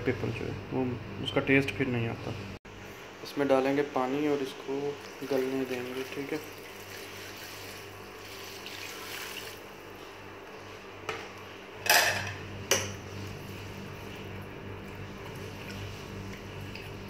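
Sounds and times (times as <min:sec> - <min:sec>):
water pouring into metal pot: 0:05.1 - 0:09.6.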